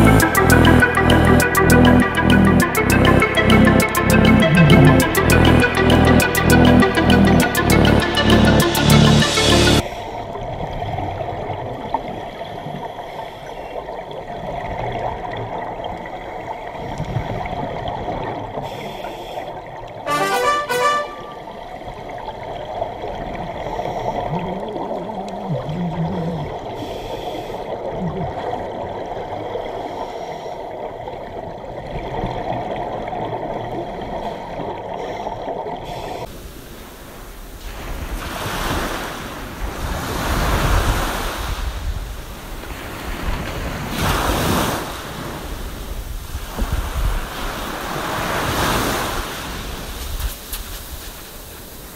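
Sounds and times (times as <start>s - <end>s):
sea waves washing: 0.0s - 13.4s, 20.0s - 21.8s, 35.8s - 51.9s
muffled rush of water: 9.8s - 51.9s.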